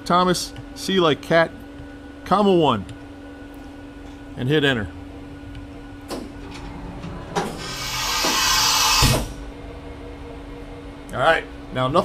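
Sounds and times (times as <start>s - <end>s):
steady machine hum: 0.0s - 12.0s
pneumatic hiss ending in thump: 7.4s - 9.4s.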